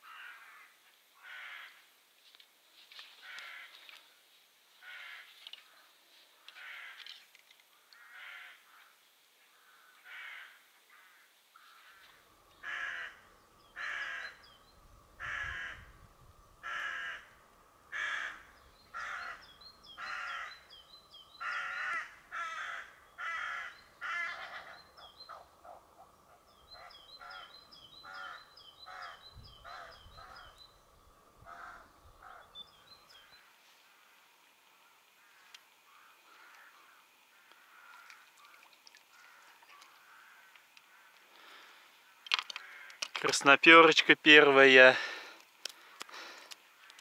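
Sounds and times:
crow cawing: 0.0 - 1.8, 3.2 - 3.9, 4.8 - 5.3, 6.5 - 7.2, 7.8 - 14.4, 15.2 - 15.9, 16.6 - 20.7, 21.3 - 26.1, 26.7 - 30.6, 31.4 - 33.4, 34.8 - 43.2.

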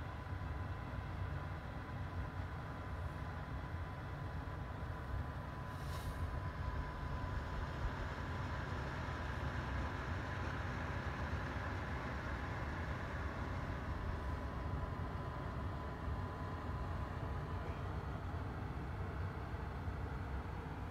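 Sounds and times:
brief soft hiss: 5.6 - 6.4.

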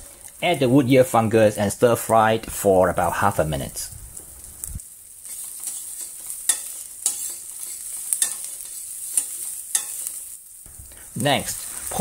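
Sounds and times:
food sizzling in oil: 0.0 - 1.7, 3.0 - 12.0
metal spatula scraping pan: 5.2 - 10.3.

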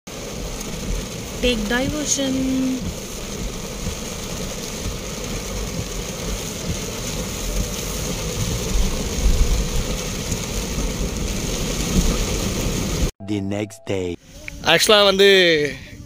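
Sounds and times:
rain on car: 0.1 - 13.1, 14.3 - 16.0
tyres on wet road: 0.1 - 13.1
engine and road rumble: 0.1 - 13.2.

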